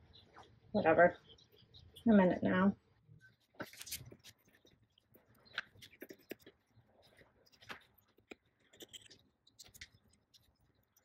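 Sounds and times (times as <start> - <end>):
vinyl sheet rustling: 3.4 - 9.0.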